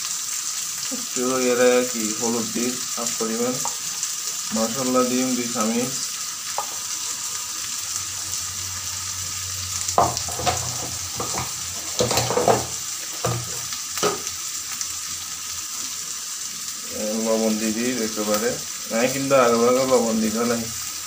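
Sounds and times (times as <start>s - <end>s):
oil and vegetables sizzling: 0.0s - 21.0s
sharp knocks or scrapes: 10.0s - 14.3s.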